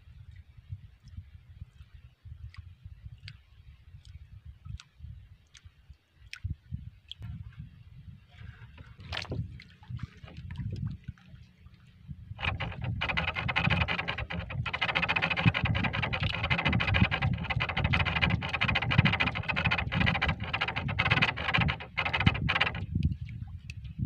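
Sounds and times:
low steady rumble: 6.7 - 24.0
fishing line scraping on wood: 12.3 - 23.0.

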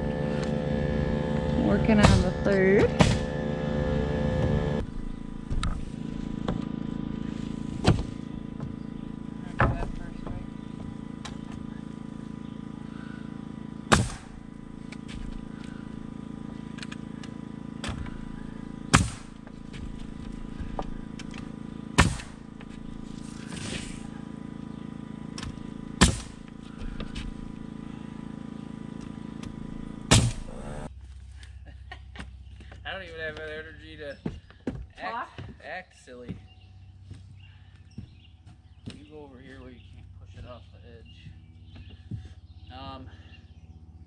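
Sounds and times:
steady motor hum: 0.0 - 44.0
pneumatic nailer shots: 1.9 - 3.5, 13.9 - 15.9, 16.7 - 24.4, 25.3 - 27.6, 29.0 - 30.9.

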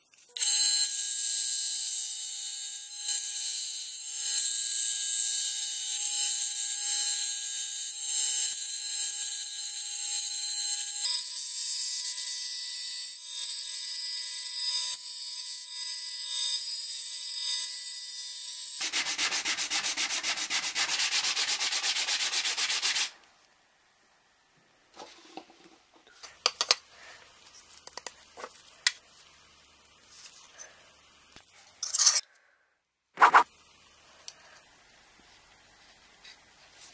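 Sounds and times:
bandsaw cutting: 18.5 - 23.2.

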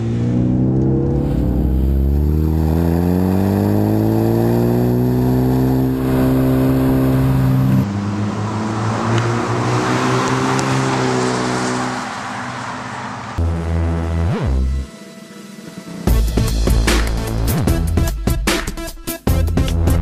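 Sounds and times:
car engine accelerating: 0.0 - 14.9
road noise: 0.0 - 16.0.

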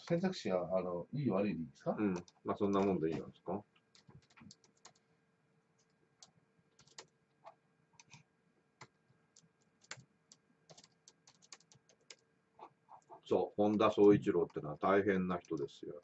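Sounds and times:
laptop keyboard typing: 2.1 - 3.0, 3.9 - 5.0, 5.8 - 8.2, 8.8 - 12.2, 13.0 - 14.6, 15.3 - 15.8.

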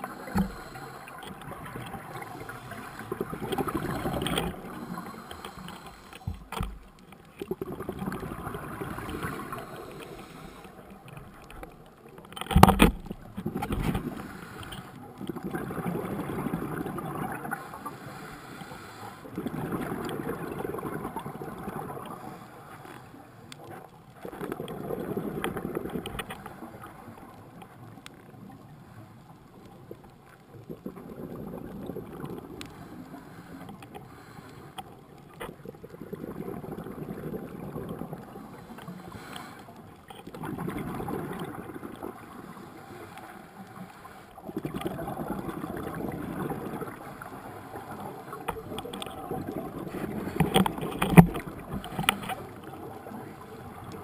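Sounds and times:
scuba regulator exhaled bubbles: 0.0 - 6.6, 7.4 - 10.6, 13.3 - 18.2, 19.3 - 22.2, 30.5 - 33.0, 35.6 - 39.4, 40.3 - 42.6, 44.4 - 53.2.

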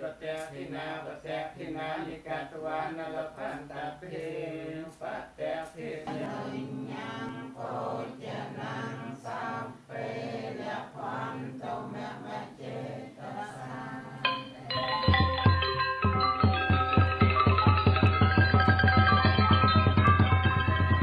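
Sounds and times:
group chanting in unison: 0.0 - 14.8.

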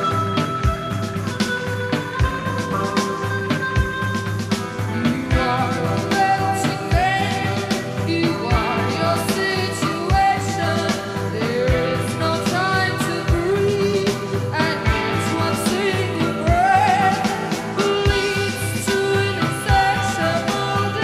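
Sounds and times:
rock band playing: 0.0 - 21.0
woman singing: 5.1 - 21.0.

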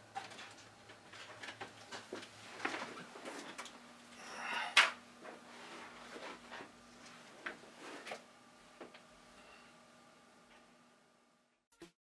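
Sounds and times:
faint steady hum: 0.0 - 11.7.

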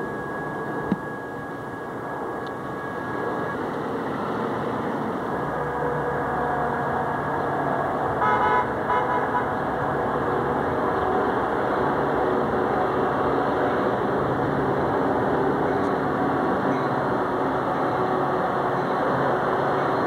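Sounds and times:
low train rumble: 0.0 - 20.0
train horn blasts: 5.4 - 14.0.

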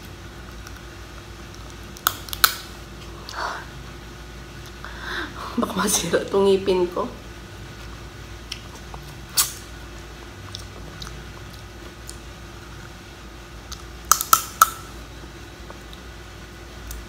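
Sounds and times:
crab shell cracking between teeth: 1.5 - 2.7, 13.7 - 14.8.

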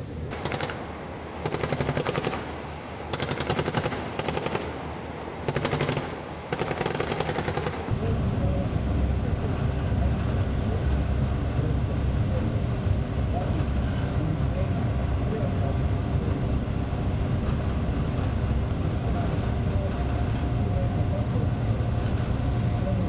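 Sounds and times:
machine-gun bursts: 0.3 - 0.8, 3.1 - 4.6, 5.5 - 7.8
steady low rumble: 7.9 - 23.0.

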